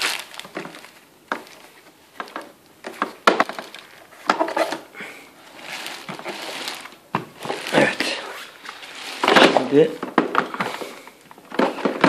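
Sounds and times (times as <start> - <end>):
plastic wrapping rustling: 0.0 - 12.0.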